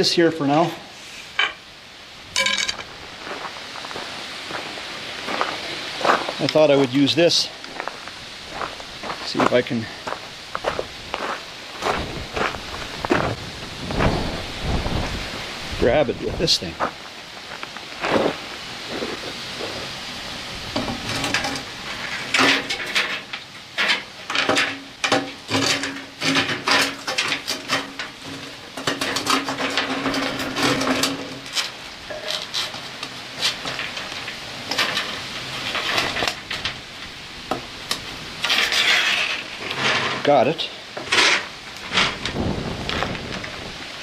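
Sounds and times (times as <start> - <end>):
grinding scrape: 38.4 - 40.4, 41.0 - 42.4.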